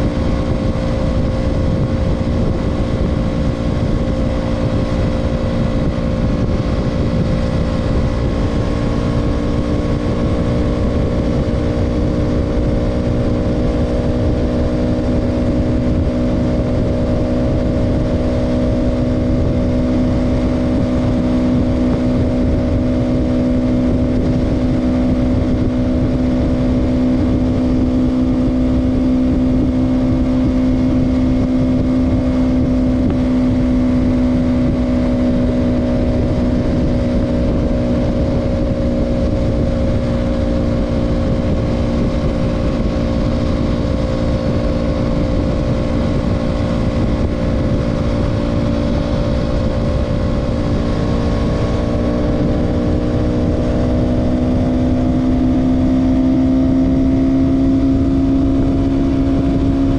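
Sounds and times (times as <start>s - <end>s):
motorcycle engine cruising: 0.0s - 59.9s
wind noise: 0.0s - 59.9s.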